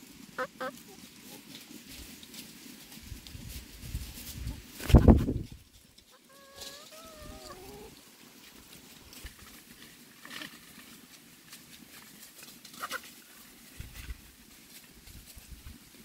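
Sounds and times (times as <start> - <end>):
rustling and scratching of leaves: 0.0 - 16.0
chicken calls: 0.2 - 1.5, 6.0 - 8.7, 12.7 - 13.4.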